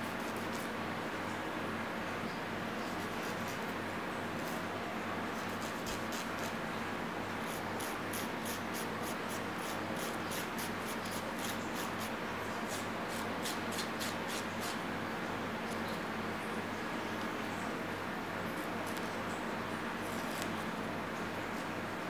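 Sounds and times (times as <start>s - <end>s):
nail file rasping: 5.4s - 6.5s, 7.5s - 12.1s, 12.7s - 14.8s.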